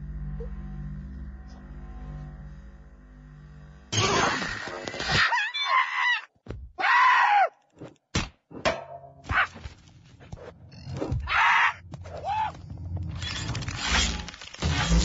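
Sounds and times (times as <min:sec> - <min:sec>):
monkey screeching: 0:04.0 - 0:06.2.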